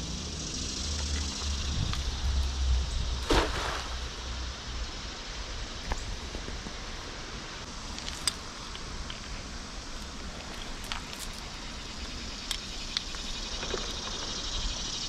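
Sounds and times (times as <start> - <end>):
outdoor hiss: 0.0 - 15.0
wind rumble on microphone: 1.4 - 3.3.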